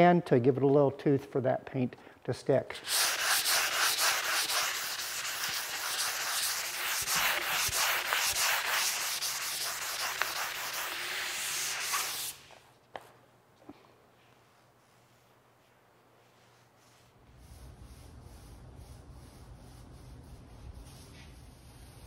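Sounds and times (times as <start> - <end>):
sandpaper rubbing on wood: 2.8 - 12.5.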